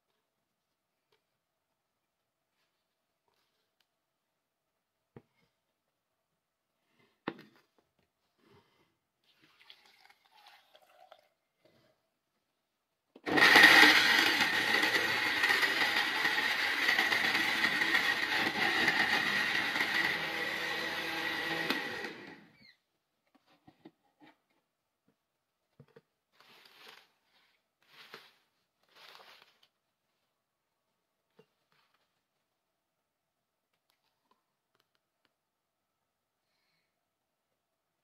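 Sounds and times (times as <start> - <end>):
blender motor whining: 13.2 - 22.7.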